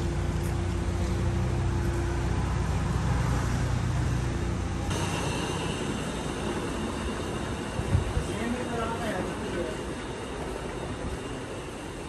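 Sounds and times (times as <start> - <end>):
low mechanical hum: 0.0 - 5.8.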